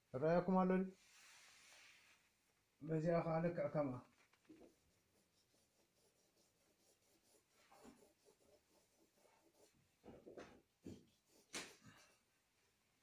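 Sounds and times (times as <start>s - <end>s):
pencil scratching on paper: 4.5s - 10.1s, 10.8s - 12.3s.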